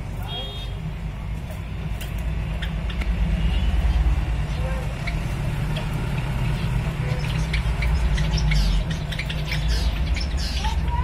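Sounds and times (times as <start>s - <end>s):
finches chirping: 2.5s - 11.0s.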